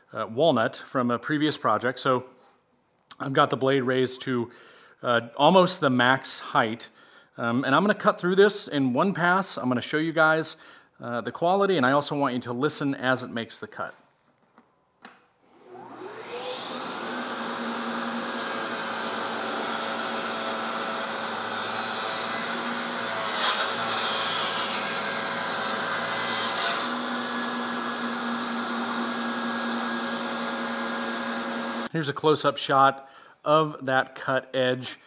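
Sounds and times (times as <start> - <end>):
table saw whining: 15.4 - 31.9
saw blade cutting wood: 15.6 - 31.9.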